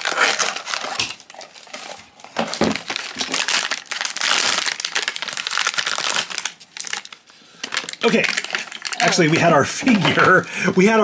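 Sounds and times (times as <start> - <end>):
foil bag crinkling: 0.0 - 10.1.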